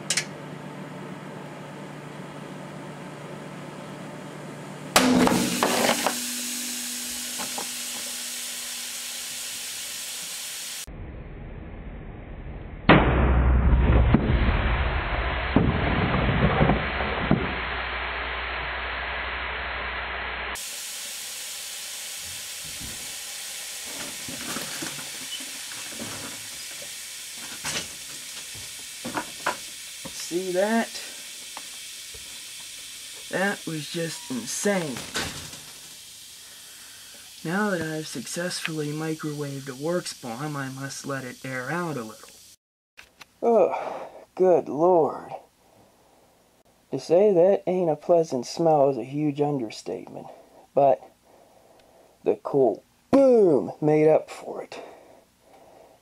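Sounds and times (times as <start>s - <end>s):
microwave oven humming: 0.0s - 10.8s
loud explosion bang: 10.9s - 20.6s
slowed deep boom: 10.9s - 20.6s
scattered crackles: 12.9s - 20.3s
hissing: 19.9s - 42.5s.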